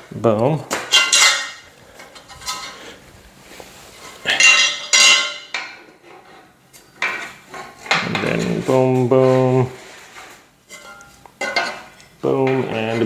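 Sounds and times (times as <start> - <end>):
metal bed frame parts clanking: 0.7 - 2.8, 4.0 - 9.6, 10.7 - 13.0.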